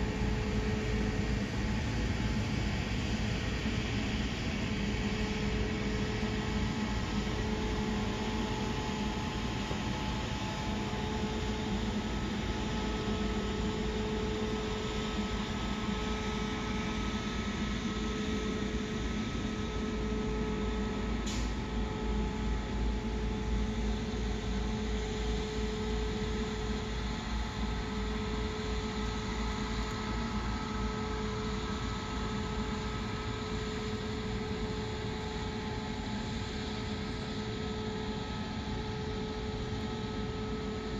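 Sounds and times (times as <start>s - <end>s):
mechanical drone with pitched hum: 0.0s - 40.9s
short click: 21.3s - 21.6s.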